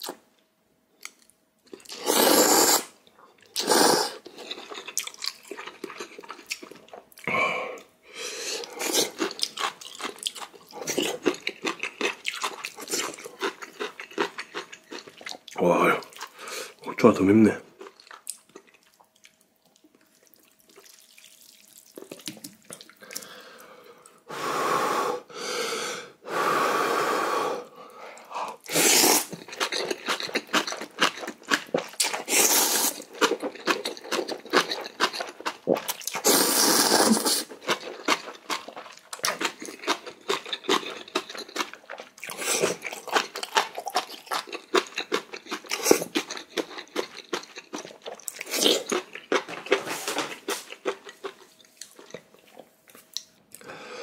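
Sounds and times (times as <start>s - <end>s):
slurping noodles: 1.8s - 3.0s, 3.6s - 4.4s, 28.6s - 30.8s, 31.8s - 33.4s, 35.7s - 38.7s
wet chewing: 3.4s - 7.3s, 8.6s - 16.4s, 17.8s - 23.4s, 28.5s - 53.7s.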